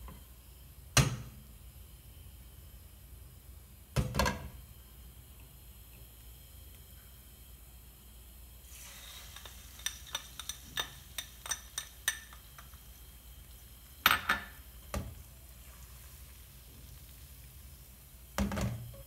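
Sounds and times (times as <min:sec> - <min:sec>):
egg sizzling in frying pan: 0:08.5 - 0:19.0
spatula clinking against bowl and pan: 0:09.4 - 0:12.7.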